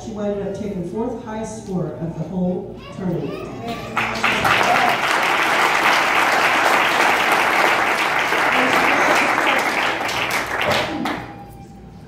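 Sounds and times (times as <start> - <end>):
audience applause: 3.8 - 11.4.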